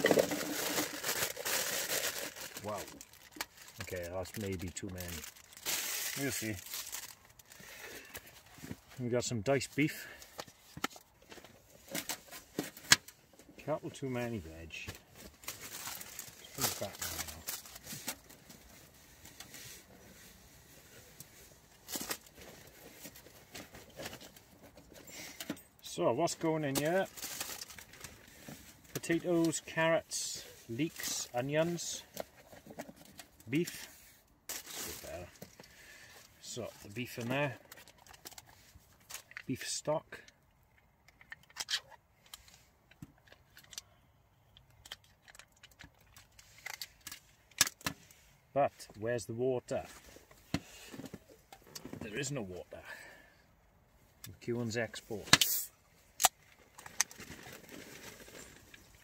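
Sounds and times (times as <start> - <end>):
stock cube wrapper rustling: 0.0 - 8.6, 15.2 - 20.3, 26.7 - 29.6, 55.1 - 59.0.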